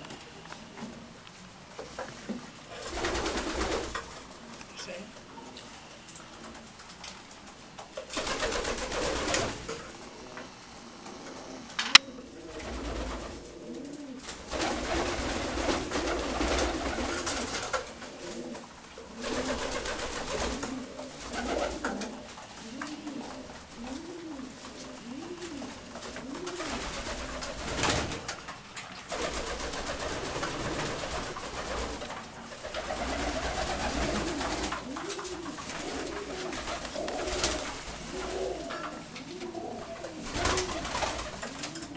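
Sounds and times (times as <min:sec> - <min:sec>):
pigeons cooing: 0:00.0 - 0:41.9
sharp click: 0:11.8 - 0:12.1.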